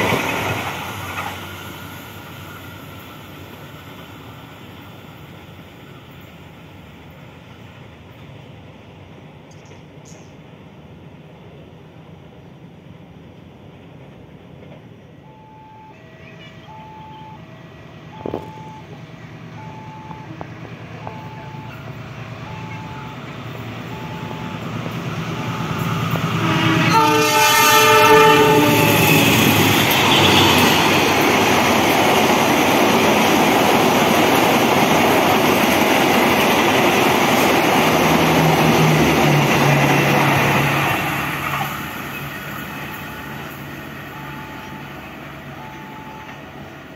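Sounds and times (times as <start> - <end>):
train wheels and carriages passing: 0.0 - 46.9
locomotive horn blast: 26.3 - 31.1.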